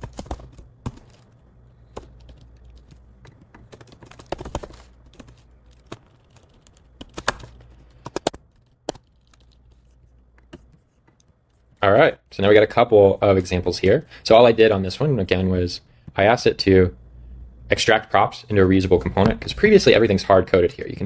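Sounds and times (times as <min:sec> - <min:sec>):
faint low hum: 0:00.0 - 0:21.0
typing on computer keyboard: 0:01.9 - 0:09.6.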